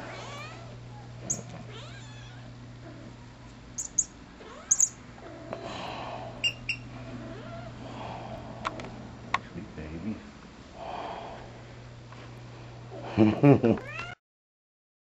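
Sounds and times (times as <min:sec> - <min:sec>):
cat meowing and yowling: 0:00.1 - 0:00.7, 0:01.7 - 0:02.5
short high squeaks: 0:03.8 - 0:05.0, 0:06.4 - 0:06.8.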